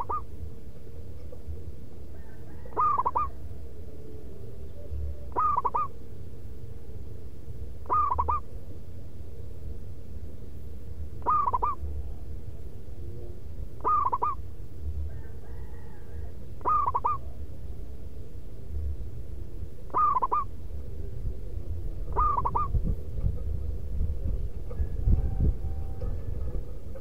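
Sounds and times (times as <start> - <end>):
dove cooing: 0.0 - 0.4, 1.2 - 6.2, 7.8 - 8.6, 11.2 - 18.0, 19.7 - 27.0
steady low rumble: 0.0 - 27.0.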